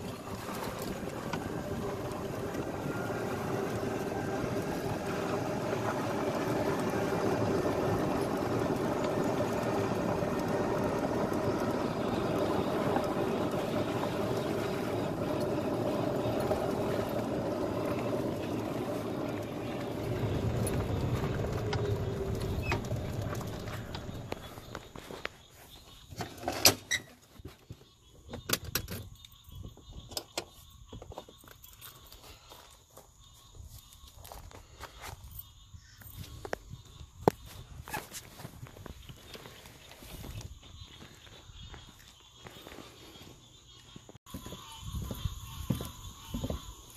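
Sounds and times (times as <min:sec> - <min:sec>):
golf cart driving: 0:00.0 - 0:25.5
road noise: 0:00.0 - 0:26.0.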